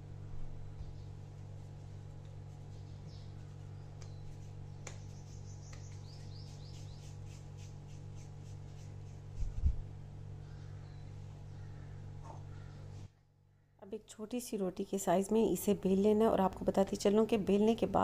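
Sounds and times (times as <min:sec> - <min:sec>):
steady low hum: 0:00.0 - 0:18.0
dough squelches and ticks: 0:01.2 - 0:09.3.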